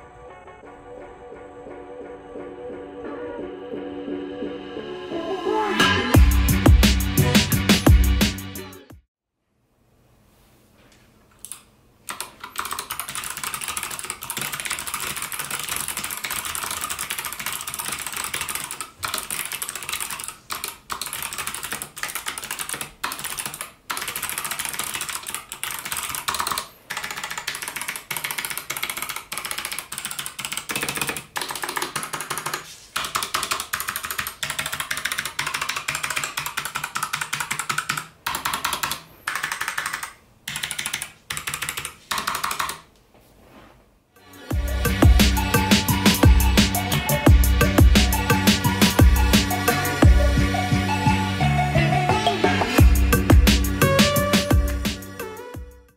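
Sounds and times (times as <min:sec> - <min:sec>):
mechanical keyboard typing clicks: 0:11.4 - 0:42.9.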